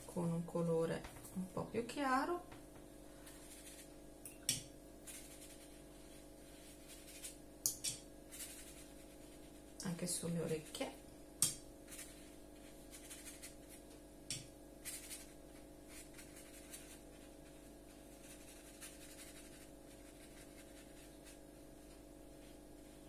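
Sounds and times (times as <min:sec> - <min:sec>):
steady low hum: 0:00.0 - 0:23.0
brush strokes on paper: 0:03.1 - 0:04.0, 0:05.0 - 0:07.4, 0:08.3 - 0:11.0, 0:11.9 - 0:13.9, 0:14.8 - 0:23.0.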